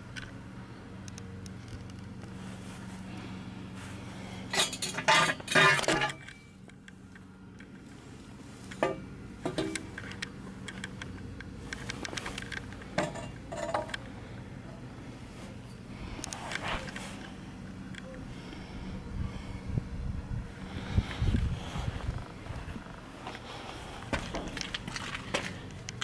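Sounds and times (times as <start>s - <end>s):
steady low hum: 0.0s - 26.0s
metal engine parts clinking: 4.5s - 6.9s, 8.7s - 14.9s.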